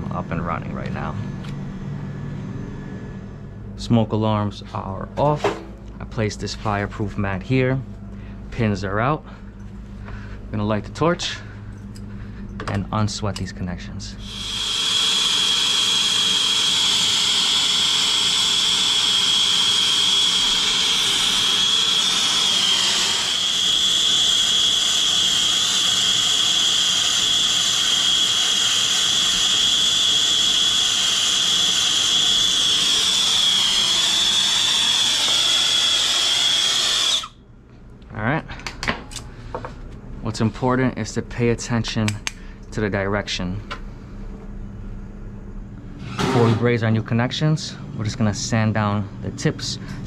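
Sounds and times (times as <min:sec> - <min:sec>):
brazing torch hissing: 0:14.2 - 0:37.4.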